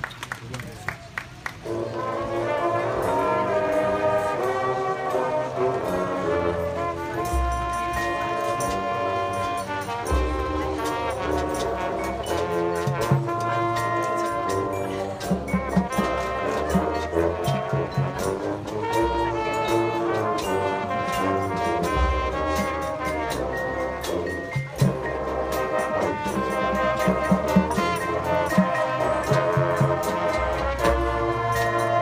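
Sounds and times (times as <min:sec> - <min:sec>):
brass chords: 0:01.6 - 0:32.0
sharp percussion strikes: 0:07.2 - 0:32.0.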